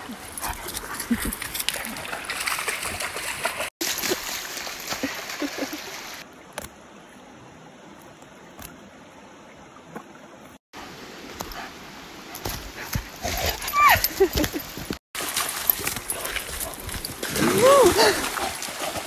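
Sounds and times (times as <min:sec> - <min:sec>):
stream water trickling: 0:00.0 - 0:19.0
dog splashing through creek: 0:00.2 - 0:06.3, 0:12.4 - 0:19.0
water rushing over stones: 0:01.4 - 0:06.9, 0:14.7 - 0:19.0.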